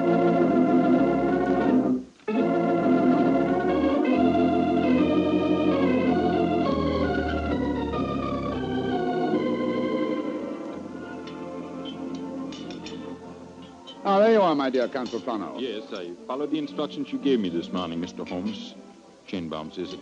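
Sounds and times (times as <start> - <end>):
organ chords: 0.0 - 20.0.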